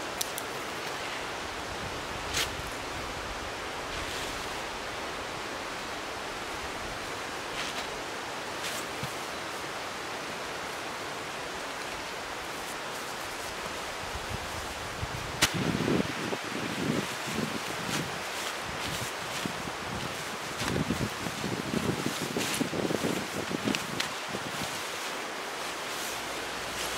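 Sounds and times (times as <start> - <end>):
plastic tarp crackling: 15.4 - 26.9.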